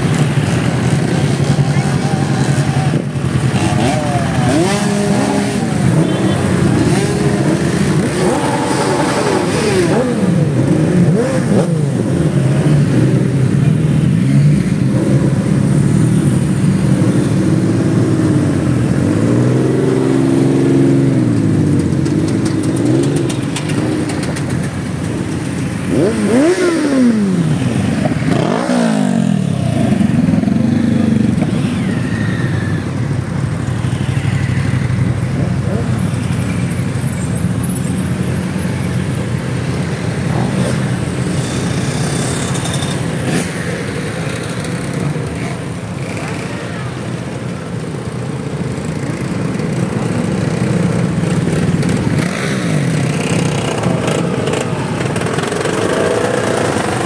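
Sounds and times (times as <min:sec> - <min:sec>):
motorcycles revving past: 0:00.0 - 0:32.8, 0:48.8 - 0:57.0.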